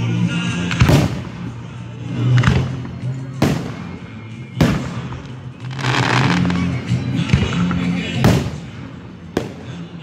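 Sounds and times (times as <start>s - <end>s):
background music: 0.0s - 10.0s
firework bangs: 0.7s - 1.5s, 4.6s - 7.6s, 8.2s - 8.8s
firework hiss and crackle: 5.6s - 6.7s.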